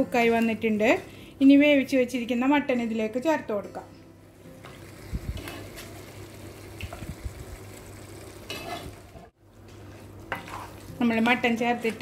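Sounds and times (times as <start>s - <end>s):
sauce simmering: 4.7s - 10.8s.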